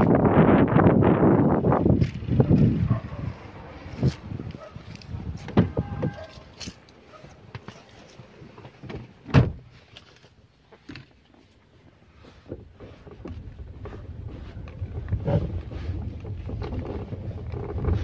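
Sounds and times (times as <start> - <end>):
car door opening: 4.9 - 6.8, 8.6 - 9.7
car door shutting thud: 8.9 - 9.6.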